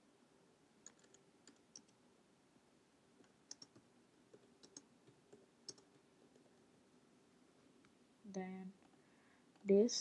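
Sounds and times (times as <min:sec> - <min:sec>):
computer keyboard keystrokes: 0:00.8 - 0:02.0, 0:03.2 - 0:03.8, 0:04.4 - 0:06.0.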